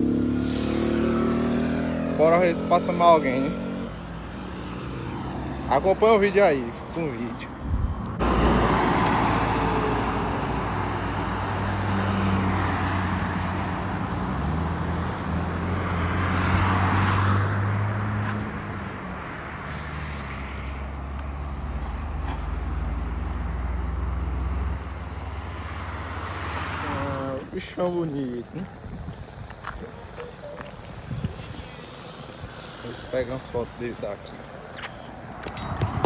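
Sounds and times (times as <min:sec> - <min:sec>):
car passing close: 0:00.0 - 0:28.2.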